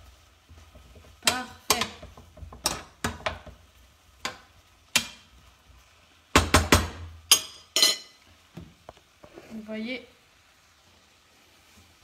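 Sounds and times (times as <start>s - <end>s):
utensils and dishes knocking: 6.4s - 8.1s.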